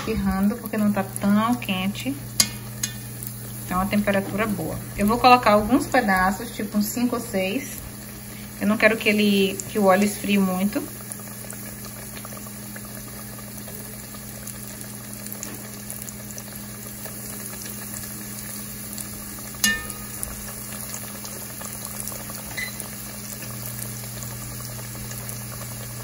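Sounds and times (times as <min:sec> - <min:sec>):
chicken sizzling in oil: 0:00.0 - 0:26.0
metal fork clinking on pot: 0:02.4 - 0:03.0, 0:19.6 - 0:20.2.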